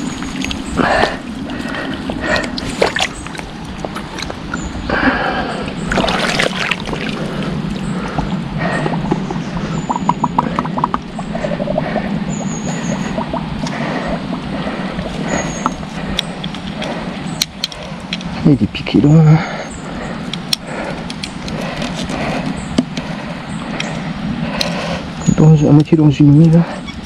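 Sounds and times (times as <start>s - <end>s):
river water splashing: 0.0s - 17.1s
steady low hum: 0.0s - 27.0s.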